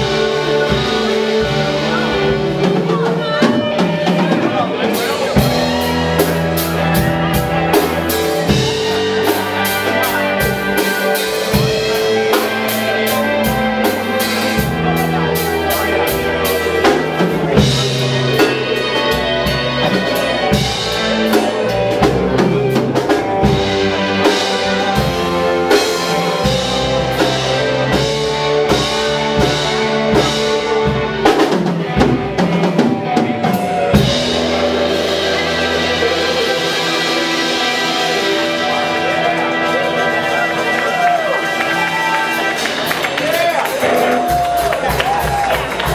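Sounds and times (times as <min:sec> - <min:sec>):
drum kit: 0:00.0 - 0:45.9
electric bass: 0:00.0 - 0:45.9
electric guitars: 0:00.0 - 0:45.9.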